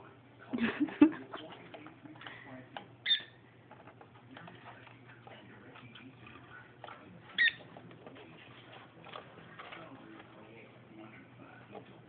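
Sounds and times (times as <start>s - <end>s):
parrot chirping: 3.0s - 3.4s, 7.3s - 7.7s.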